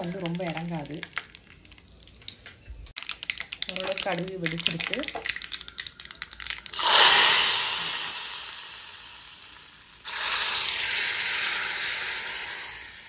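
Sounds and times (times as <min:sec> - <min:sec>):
seeds crackling in hot oil: 0:00.0 - 0:13.0
loud sizzling: 0:06.6 - 0:13.0.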